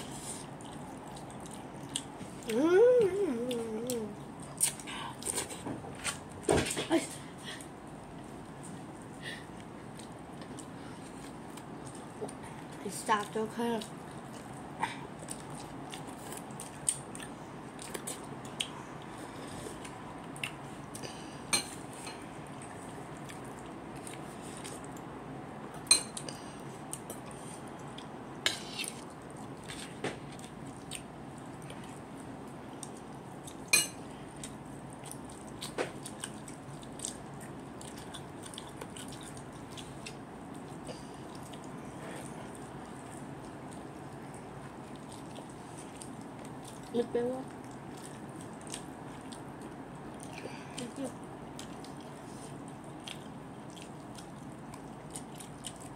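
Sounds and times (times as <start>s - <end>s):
person chewing and biting: 4.3s - 5.6s, 25.7s - 46.9s, 51.5s - 55.9s.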